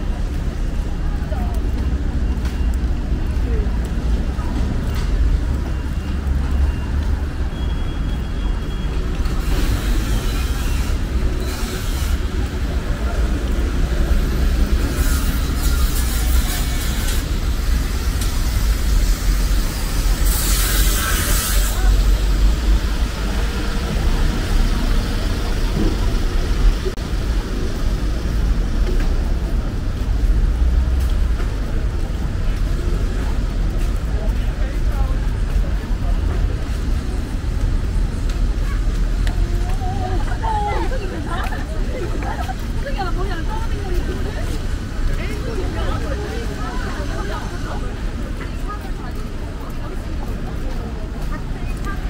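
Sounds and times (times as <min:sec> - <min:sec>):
low rumble of vehicles: 0:00.0 - 0:52.0
tyre hiss on wet road: 0:09.3 - 0:12.6, 0:14.6 - 0:28.7.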